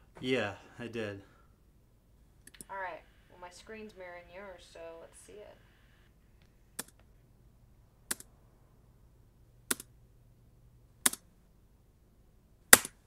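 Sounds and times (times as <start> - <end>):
faint low hum: 0.0 - 13.0
sharp clicks: 2.4 - 2.7, 6.4 - 7.1, 8.1 - 8.3, 9.7 - 9.9, 11.0 - 11.2, 12.7 - 13.0.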